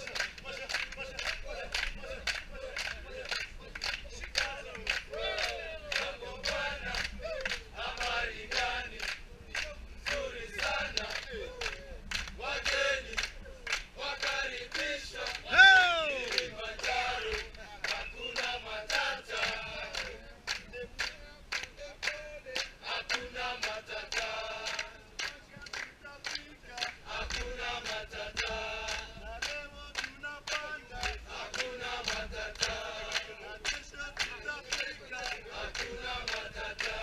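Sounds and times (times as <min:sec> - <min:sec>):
men singing and chanting: 0:00.0 - 0:37.0
rhythmic hand clapping: 0:00.0 - 0:37.0.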